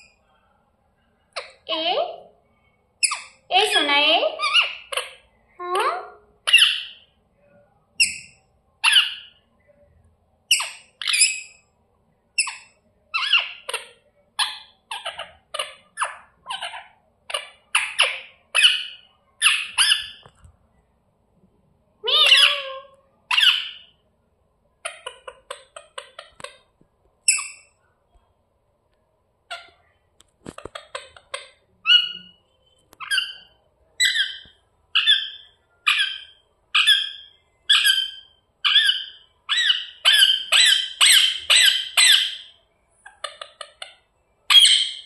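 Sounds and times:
parakeets squawking: 3.0s - 7.0s, 8.0s - 9.4s, 12.4s - 20.3s, 22.0s - 23.9s, 30.6s - 32.4s, 33.0s - 42.5s, 44.5s - 45.0s.

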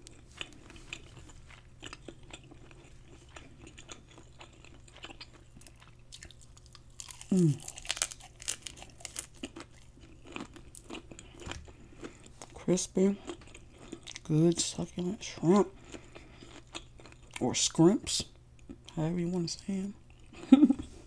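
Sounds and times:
crunchy bite and chewing: 0.0s - 12.6s, 13.2s - 14.4s
person humming mm: 7.3s - 7.6s.

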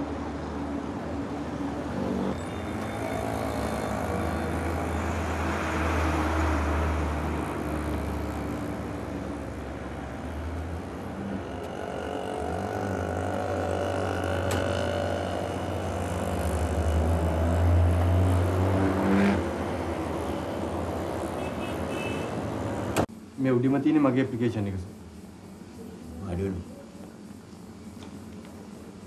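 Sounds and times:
highway traffic passing: 0.0s - 23.3s.

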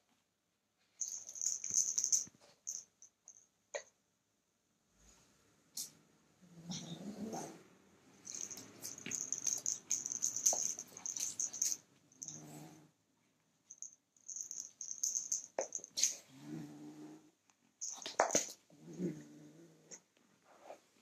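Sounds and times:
small bell jingling: 1.0s - 3.5s, 8.2s - 12.5s, 13.7s - 16.2s, 17.8s - 18.6s
kitten growling low: 6.5s - 7.7s, 16.2s - 17.3s, 18.7s - 20.0s.

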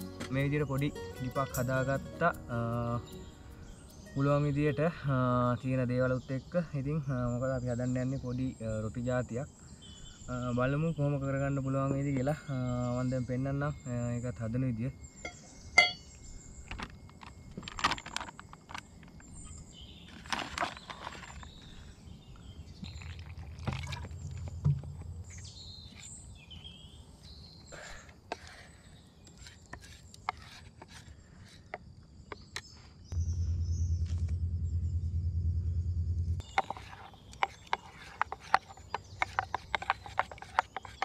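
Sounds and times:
faint birds chirping: 0.0s - 41.0s
low rumble: 33.1s - 37.4s
metal spoon scraping steel cup: 36.5s - 41.0s.

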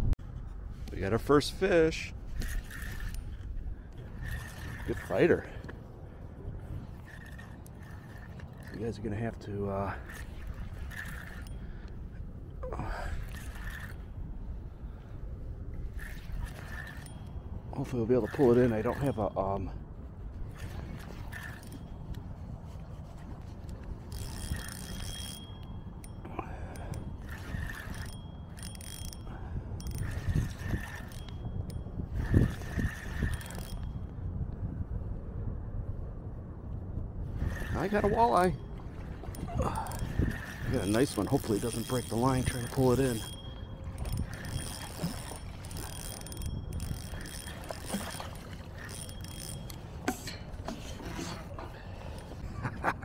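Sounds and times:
fishing reel cranking: 2.3s - 5.6s, 6.7s - 12.0s, 12.8s - 14.2s, 15.8s - 19.4s, 20.5s - 22.2s, 23.7s - 34.1s, 37.4s - 52.4s
steady low rumble: 33.8s - 37.8s.

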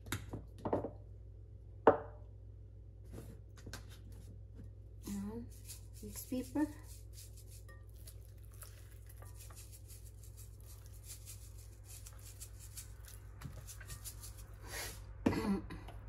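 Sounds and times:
pepper granules rattling in shaker: 5.0s - 15.0s.

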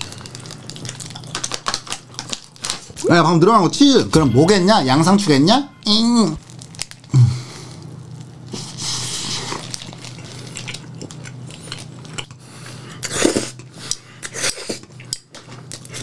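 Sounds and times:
chewing: 0.0s - 3.0s, 7.8s - 16.0s
steady low hum: 0.0s - 16.0s
slurping cheese: 7.8s - 15.1s.

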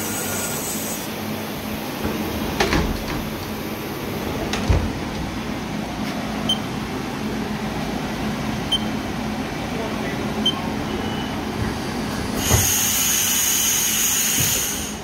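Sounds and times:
sliding machine doors shutting: 1.6s - 6.3s, 10.8s - 15.0s.

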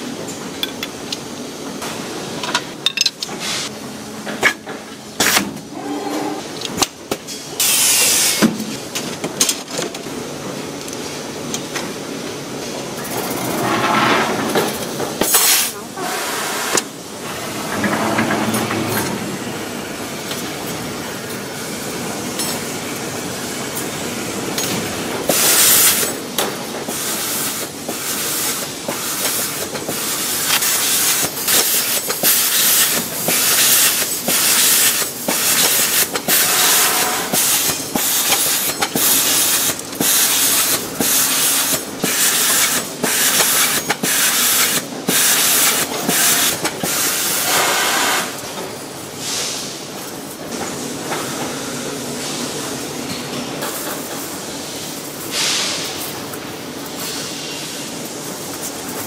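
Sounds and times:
factory machinery noise: 0.0s - 59.0s
pneumatic air hisses: 7.6s - 8.5s, 26.9s - 48.4s, 49.2s - 49.9s, 54.6s - 56.1s.

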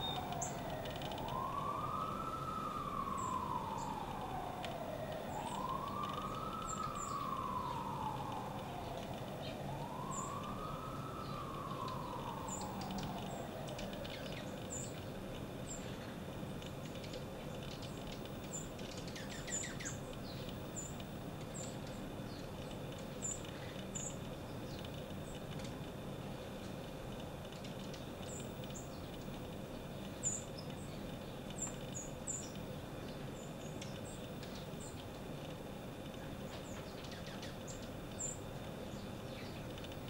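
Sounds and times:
emergency siren wailing: 0.0s - 15.0s
small birds chipping: 0.0s - 40.0s.

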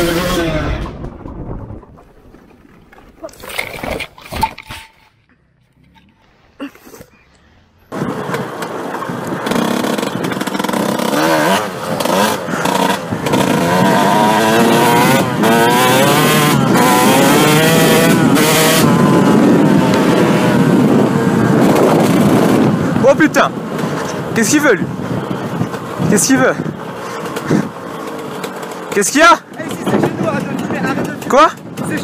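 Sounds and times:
dirt bike engine revving: 0.0s - 1.0s, 7.9s - 32.0s.

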